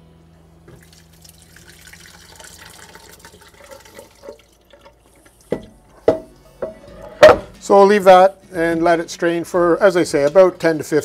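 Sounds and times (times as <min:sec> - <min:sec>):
liquid splashing and draining: 0:00.7 - 0:05.7
pot knocks: 0:05.5 - 0:07.6.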